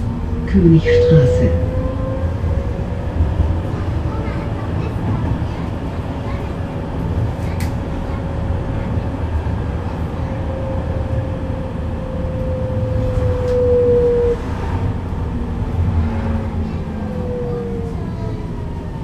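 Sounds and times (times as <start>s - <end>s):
traction drive whine: 0.0s - 4.6s
tram running gear rumble: 0.0s - 19.0s.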